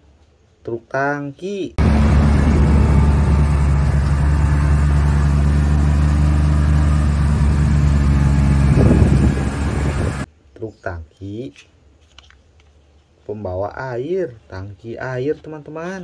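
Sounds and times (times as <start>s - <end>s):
truck engine idling: 1.8s - 10.3s.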